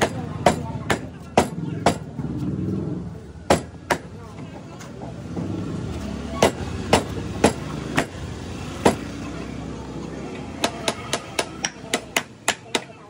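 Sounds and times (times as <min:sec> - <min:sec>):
hammer striking metal: 0:00.0 - 0:02.2, 0:03.5 - 0:04.1, 0:06.4 - 0:08.2, 0:10.6 - 0:13.0
road traffic rumble: 0:00.0 - 0:13.0.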